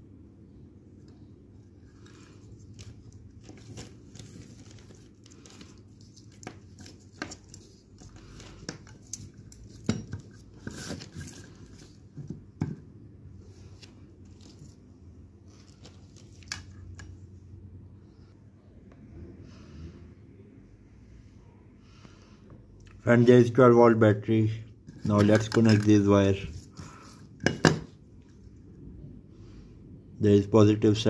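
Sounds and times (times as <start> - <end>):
plastic packaging crinkling: 2.0 - 12.0.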